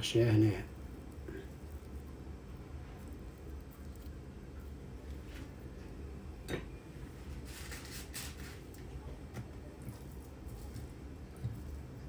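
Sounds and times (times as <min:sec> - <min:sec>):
low steady hum: 0:00.0 - 0:12.0
pastry sheet rustling: 0:07.1 - 0:12.0.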